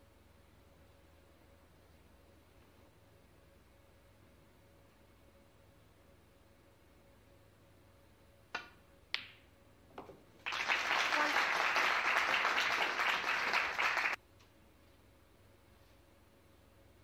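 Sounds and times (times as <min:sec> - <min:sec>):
audience applauding: 0:10.4 - 0:14.2.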